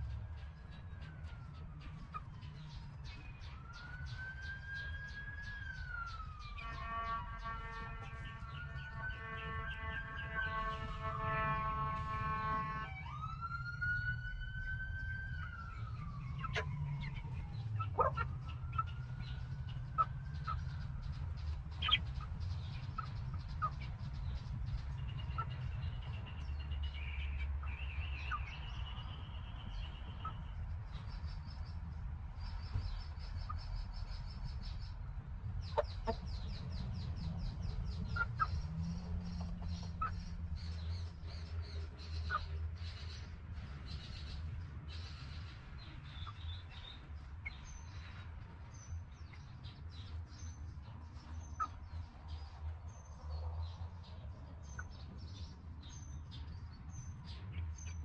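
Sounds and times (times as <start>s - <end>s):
wild birds chirping: 0.0s - 58.0s
rapid high bird chatter: 15.4s - 58.0s
hens clucking and calling: 17.8s - 19.1s, 35.7s - 36.5s.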